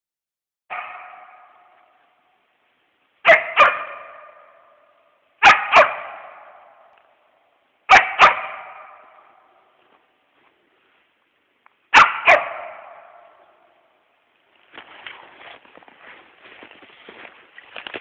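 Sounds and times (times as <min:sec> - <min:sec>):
dog barking with echo: 0:00.7 - 0:02.2, 0:03.2 - 0:07.0, 0:07.9 - 0:09.7, 0:11.9 - 0:13.9.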